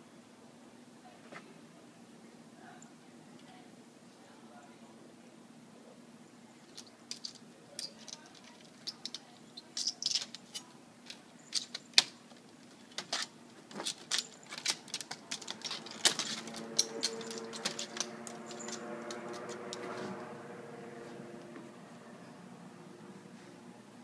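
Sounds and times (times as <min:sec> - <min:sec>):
cat claws scratching on fence: 0:06.7 - 0:20.4
low hum: 0:15.0 - 0:24.0.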